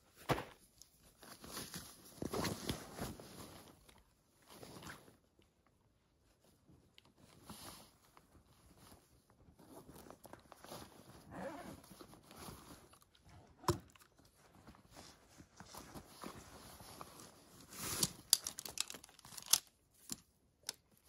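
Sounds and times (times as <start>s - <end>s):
backpack fabric rustling: 8.3s - 12.9s.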